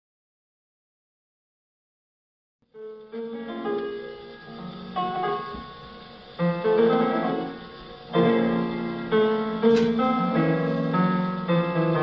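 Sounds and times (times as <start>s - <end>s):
piano chords on gramophone record: 2.7s - 12.0s
sharp click: 9.6s - 10.2s.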